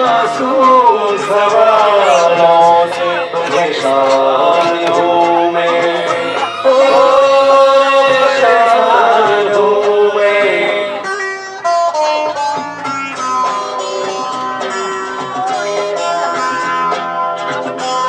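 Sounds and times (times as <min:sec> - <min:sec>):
person singing into a microphone: 0:00.0 - 0:11.1
plucked string instrument: 0:00.0 - 0:18.0.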